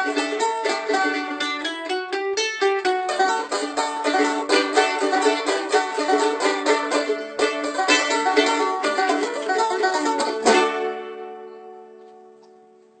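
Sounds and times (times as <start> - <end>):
banjo and mandolin bluegrass: 0.0 - 12.6.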